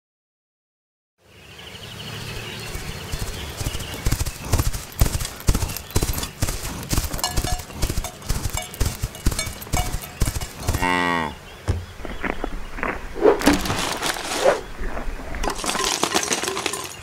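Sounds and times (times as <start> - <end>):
galloping horse hoofbeats: 2.6 - 11.0.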